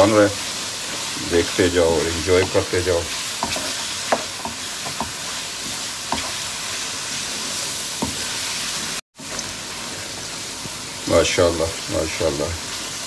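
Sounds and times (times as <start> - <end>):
chicken sizzling in a wok: 0.0 - 13.0
wooden spoon scraping a pan: 0.4 - 8.8.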